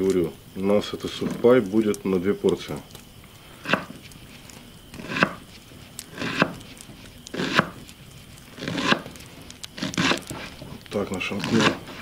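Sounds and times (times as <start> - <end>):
knife cutting cabbage: 5.0 - 5.5, 6.1 - 7.9, 8.5 - 9.2, 9.8 - 12.0.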